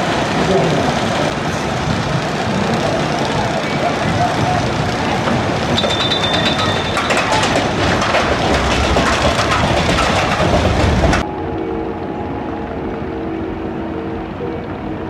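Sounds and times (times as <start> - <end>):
roller coaster wheels clattering: 0.0 - 11.4
steady held tones: 2.8 - 15.0
high squeal: 5.0 - 8.2.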